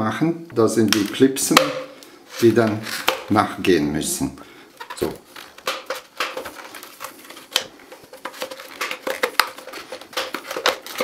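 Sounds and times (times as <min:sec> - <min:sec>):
metal scraping on plastic: 0:04.8 - 0:11.0.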